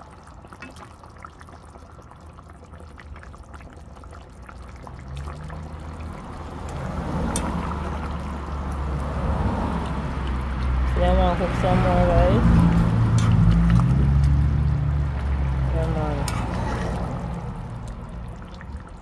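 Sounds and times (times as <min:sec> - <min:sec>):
thick gravy bubbling: 0:00.0 - 0:19.0
metal spoon stirring pot: 0:12.4 - 0:18.0.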